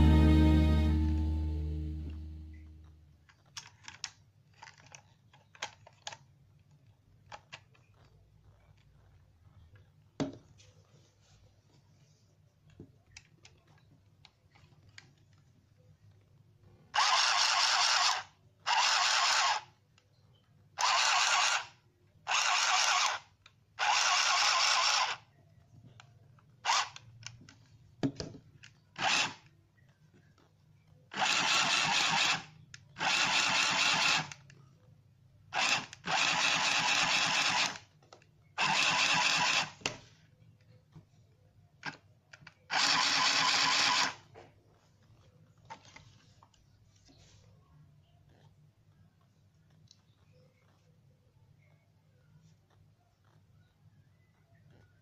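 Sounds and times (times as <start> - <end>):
handheld sewing machine running: 17.0 - 19.7, 20.8 - 25.2, 26.7 - 27.0, 29.0 - 29.4, 31.1 - 34.4, 35.6 - 37.9, 38.6 - 39.9, 42.7 - 44.2.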